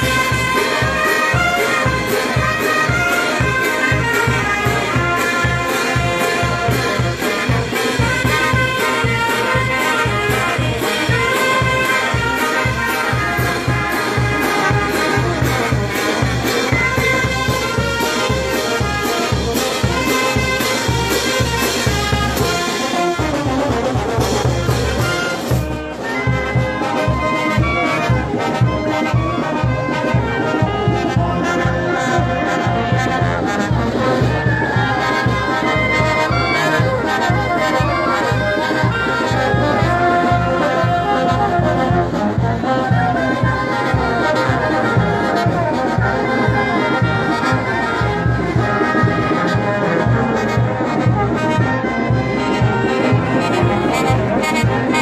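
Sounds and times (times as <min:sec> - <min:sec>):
drum beat: 0:00.0 - 0:29.9
brass band playing: 0:00.0 - 0:55.0.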